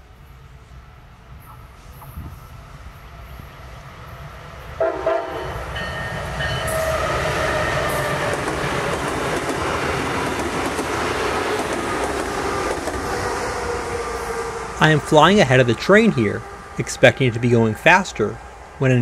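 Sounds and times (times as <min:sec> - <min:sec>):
train running on track: 0:00.0 - 0:19.0
train horn: 0:04.8 - 0:08.4.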